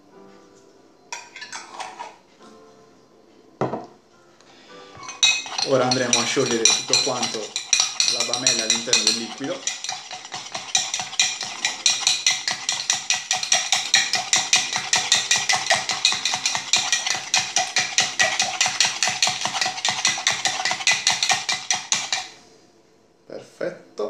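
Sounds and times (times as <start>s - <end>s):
spoon clinking in metal tin: 5.0s - 22.4s.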